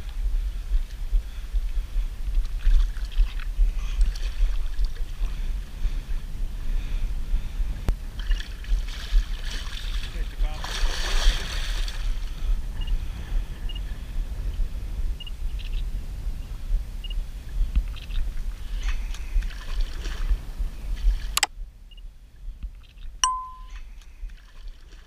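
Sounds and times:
water noise: 0.0 - 21.5, 23.2 - 23.7
short steady beep: 23.2 - 23.8.

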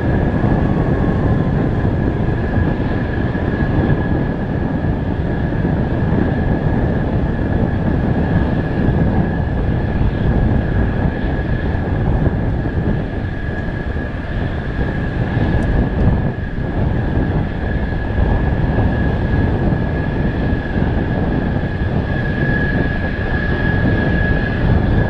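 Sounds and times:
deep rumble: 0.0 - 25.0
jet engine whine: 0.0 - 25.0.

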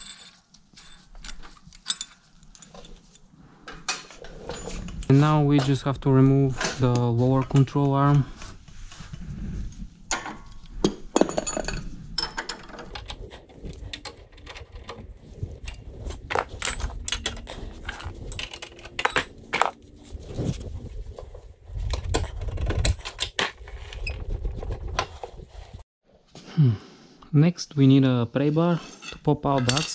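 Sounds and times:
steel hand tools clinking: 13.0 - 20.2.

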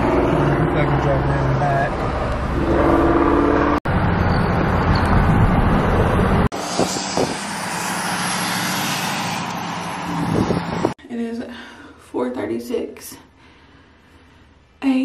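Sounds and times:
car road and engine noise: 0.0 - 11.0.

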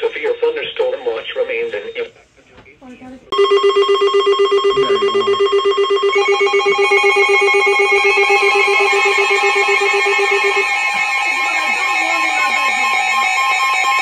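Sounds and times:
higher alarm tone: 3.3 - 14.0
pulsing electronic alarm tone: 3.3 - 14.0
warbling siren-like tone: 3.4 - 14.0.

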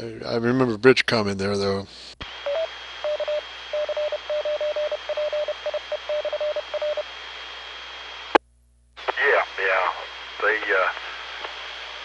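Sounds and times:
radio carrier hiss: 1.1 - 4.3, 4.9 - 8.4, 9.0 - 12.0
morse code beeps: 2.5 - 7.0
radio click: 9.0 - 9.4, 10.4 - 11.7.

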